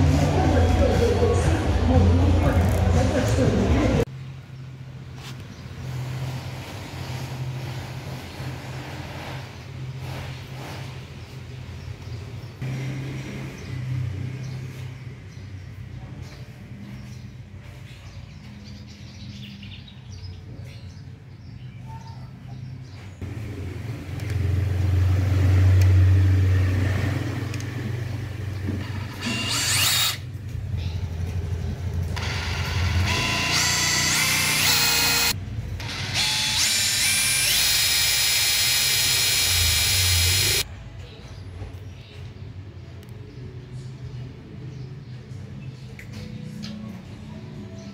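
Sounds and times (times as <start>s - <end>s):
rotary hammer motor whining: 28.8s - 30.2s, 32.2s - 40.6s.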